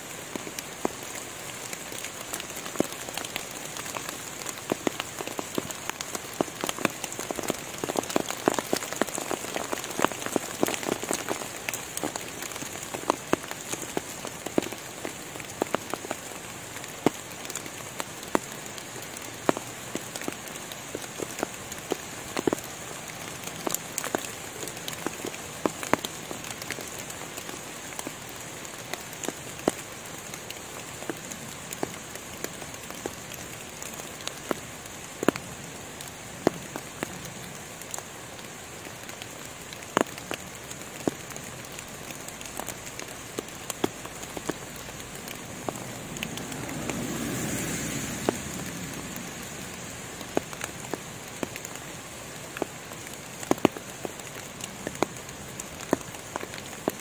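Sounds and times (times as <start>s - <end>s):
rain pattering on foliage: 0.0s - 57.0s
faint high hiss: 40.4s - 56.3s.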